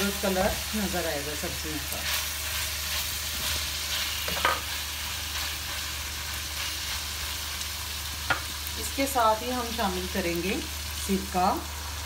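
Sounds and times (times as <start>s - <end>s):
food sizzling in a wok: 0.0s - 12.0s
spatula scraping a pan: 1.9s - 7.2s.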